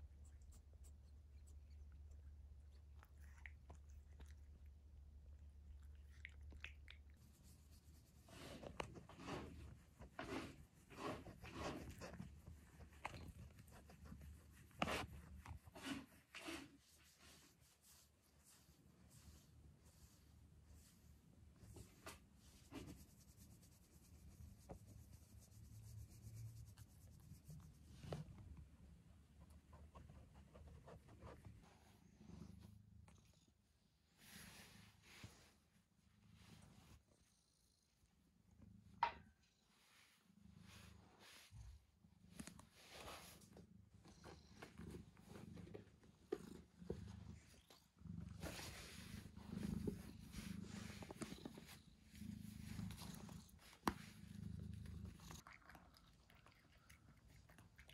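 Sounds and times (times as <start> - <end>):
fingers rubbing cat fur: 7.2 - 32.8, 34.2 - 35.7, 39.8 - 55.4
soft rustles on carpet: 39.8 - 47.6, 48.3 - 54.4.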